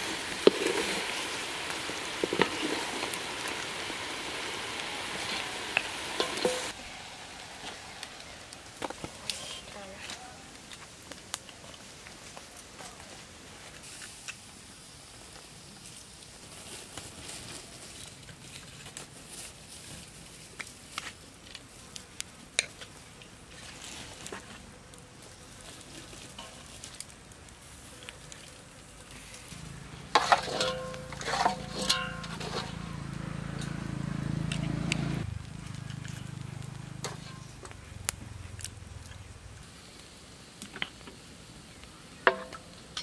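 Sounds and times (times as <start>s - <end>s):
meat sizzling on a grill: 0.0s - 12.4s, 13.4s - 24.6s, 25.2s - 43.0s.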